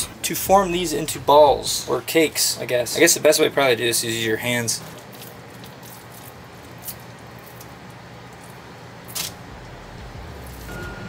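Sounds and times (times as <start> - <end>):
hands shaping food mixture: 0.0 - 10.7
room noise: 0.0 - 11.0
low hum: 9.4 - 11.0.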